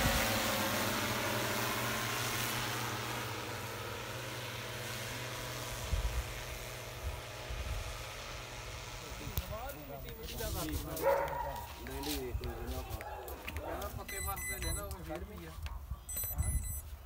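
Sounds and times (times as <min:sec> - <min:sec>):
drone propellers humming: 0:00.0 - 0:10.0.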